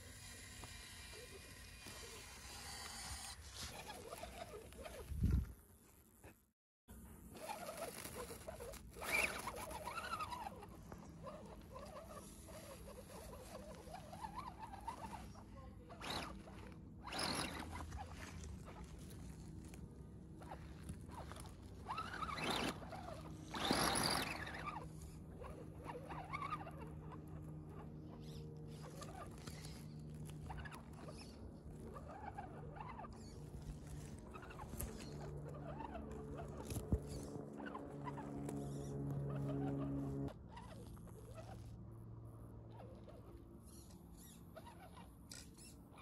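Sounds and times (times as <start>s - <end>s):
toy car motor whining: 0.0s - 5.2s, 7.3s - 19.5s, 20.4s - 41.7s, 42.8s - 46.0s.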